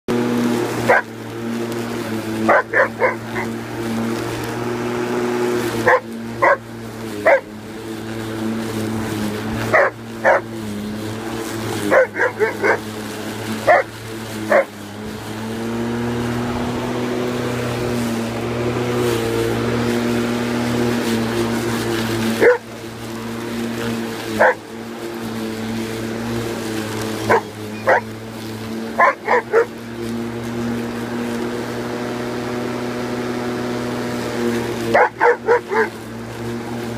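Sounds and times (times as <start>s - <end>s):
lawn mower motor hum: 0.0s - 36.9s
dog barking: 0.9s - 1.1s, 2.5s - 3.5s, 5.8s - 6.6s, 7.2s - 7.5s, 9.7s - 10.5s, 11.9s - 12.8s, 13.7s - 13.9s, 14.5s - 14.7s, 22.4s - 22.6s, 24.4s - 24.6s, 27.3s - 28.1s, 29.0s - 29.7s, 34.9s - 36.0s.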